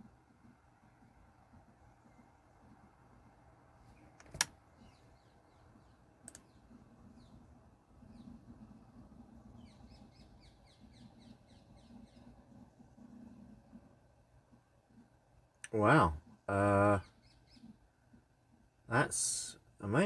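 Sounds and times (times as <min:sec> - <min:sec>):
small birds chirping: 0:00.4 - 0:20.0
sharp clicks: 0:04.2 - 0:04.6, 0:06.2 - 0:06.5.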